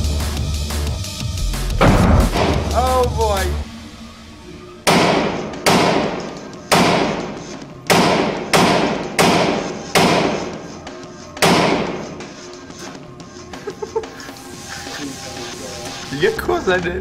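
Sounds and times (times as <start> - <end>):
rifle shots echoing indoors: 4.8 - 10.5.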